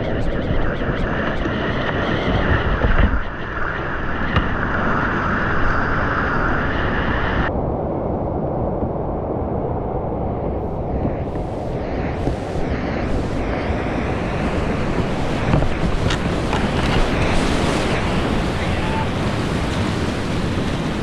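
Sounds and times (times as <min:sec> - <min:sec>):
paddle strokes in water: 0:11.2 - 0:21.0
rushing whitewater: 0:11.3 - 0:21.0.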